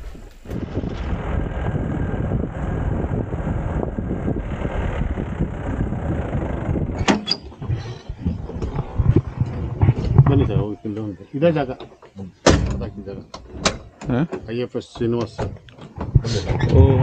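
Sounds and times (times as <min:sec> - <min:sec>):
jeep engine running: 0:00.5 - 0:13.5.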